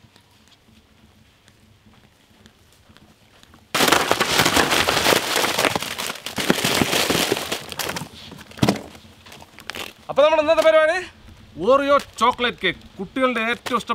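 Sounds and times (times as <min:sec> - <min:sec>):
plastic-wrapped packs tumbling: 0:03.7 - 0:10.0
clatter of packs: 0:03.8 - 0:10.0.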